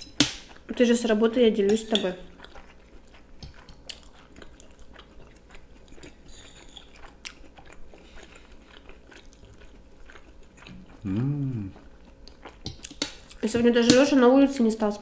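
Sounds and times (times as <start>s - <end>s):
close chewing of food: 0.4s - 14.7s.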